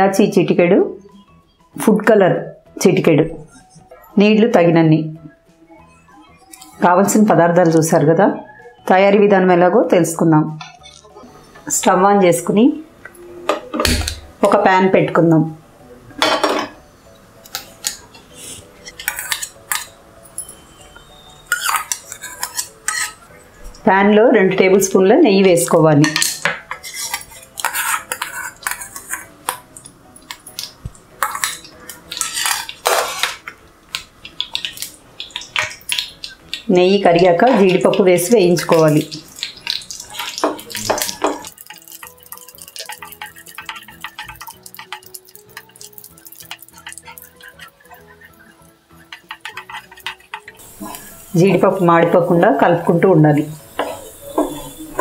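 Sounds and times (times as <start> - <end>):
soft background music: 0.0 - 55.0
metal spoon scraping a frying pan: 17.6 - 23.5, 26.0 - 33.5, 34.4 - 51.7
nuts crackling in hot oil: 21.0 - 23.3, 26.2 - 54.7.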